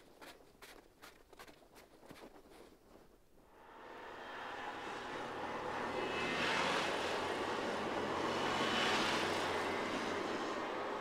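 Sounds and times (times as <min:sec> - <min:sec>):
railcar engine hum: 0:03.4 - 0:11.0.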